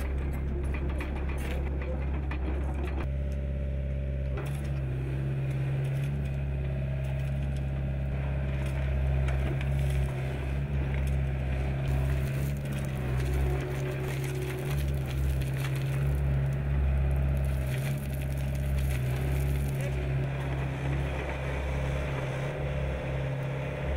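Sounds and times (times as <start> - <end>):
excavator diesel engine droning: 0.0 - 23.9
gravel crunching against steel bucket: 7.2 - 21.8.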